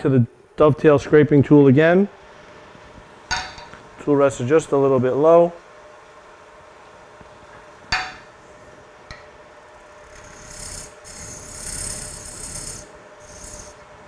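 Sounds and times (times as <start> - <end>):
scraper scraping spinning wood: 10.0 - 13.8
lathe humming: 10.0 - 13.9.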